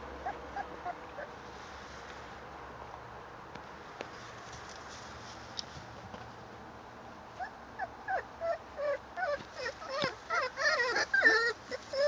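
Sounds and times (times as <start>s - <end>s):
puppies whimpering: 7.4s - 12.0s.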